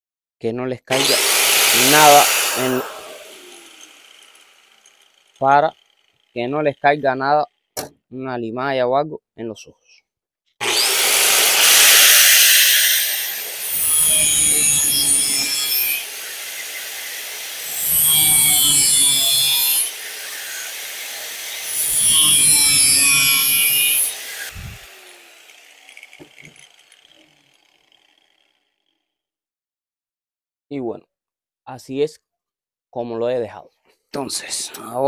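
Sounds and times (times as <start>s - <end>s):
grinder winding down: 0.9s - 7.3s, 10.6s - 28.6s
angle grinder cutting steel pipe: 0.9s - 7.9s, 10.6s - 28.5s.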